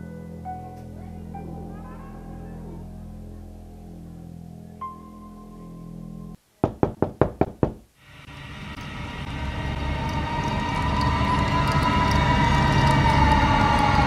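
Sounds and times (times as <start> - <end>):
soft background music: 0.0 - 6.4
knocks on a door: 6.6 - 7.9
low eerie drone: 8.2 - 14.0.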